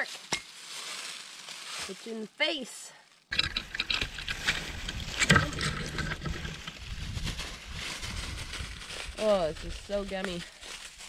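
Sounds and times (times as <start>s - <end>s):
twigs crackling and snapping: 3.3s - 11.0s
wind on microphone: 3.6s - 10.4s.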